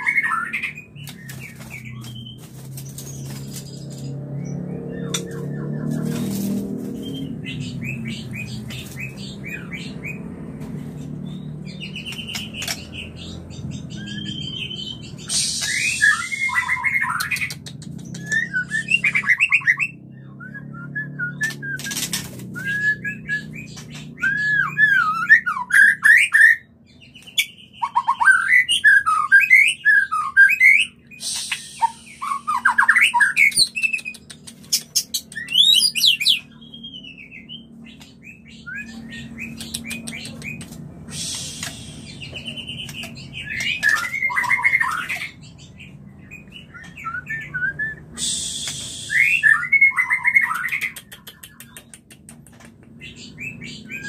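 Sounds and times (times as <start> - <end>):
bird singing whistled phrases: 14.0 - 17.5, 18.1 - 26.6, 27.8 - 34.1, 46.3 - 51.6.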